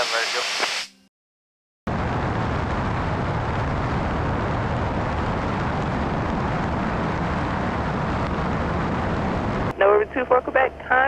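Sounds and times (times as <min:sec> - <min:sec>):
wind rushing: 0:01.9 - 0:09.8
plane engine noise: 0:01.9 - 0:11.0.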